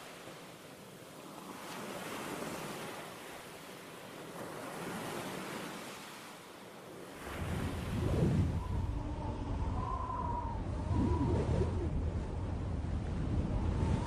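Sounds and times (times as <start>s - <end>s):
wind: 0.0s - 14.0s
surf rushing: 7.1s - 14.0s
deep low rumble: 8.1s - 13.9s.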